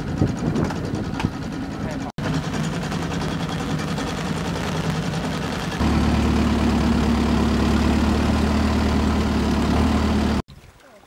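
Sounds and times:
boat engine humming: 0.0s - 10.4s.

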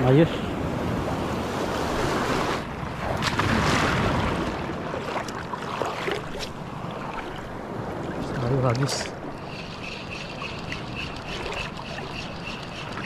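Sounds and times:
sea waves washing in: 0.0s - 13.0s.

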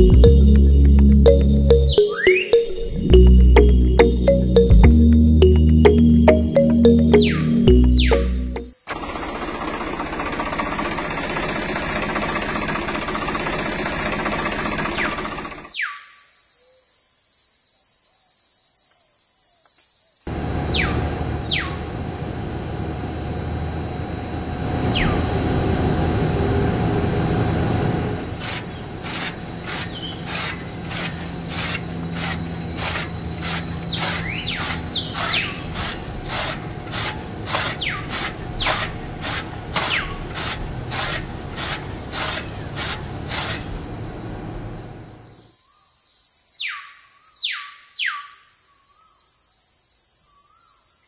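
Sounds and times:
birds chirping: 0.0s - 8.9s, 20.3s - 25.5s, 28.2s - 45.5s.

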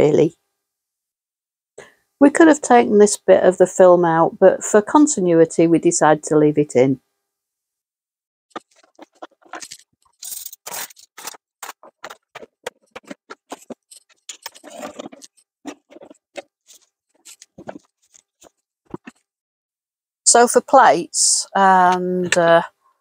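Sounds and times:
kitchen items rustling and scraping: 8.6s - 19.2s.

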